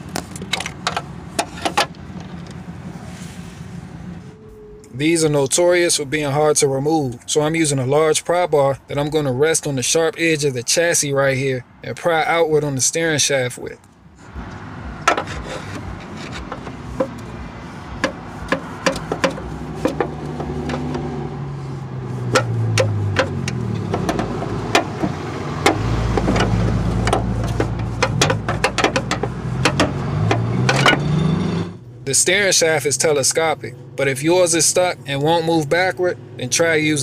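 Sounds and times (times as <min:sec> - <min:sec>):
low hum: 0:02.4 - 0:05.0
metal clanks and clicks: 0:15.0 - 0:17.3, 0:18.0 - 0:21.0, 0:22.3 - 0:31.2.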